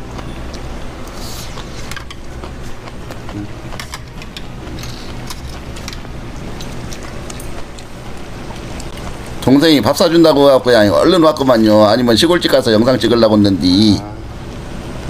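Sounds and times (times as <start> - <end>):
person chewing: 0.0 - 9.5
steady low hum: 0.0 - 15.0
chopsticks and spoon clicking on dishes: 1.5 - 9.4.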